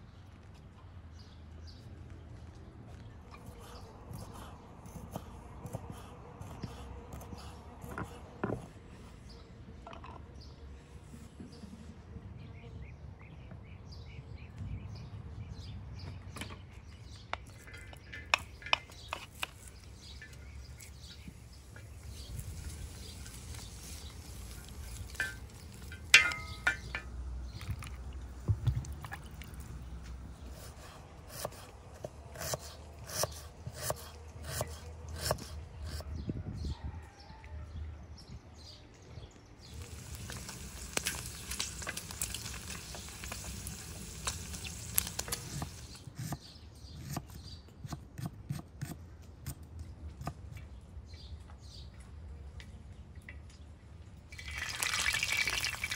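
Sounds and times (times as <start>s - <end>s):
outdoor background: 0.0s - 55.9s
birds chirping: 12.4s - 37.5s, 38.2s - 48.0s.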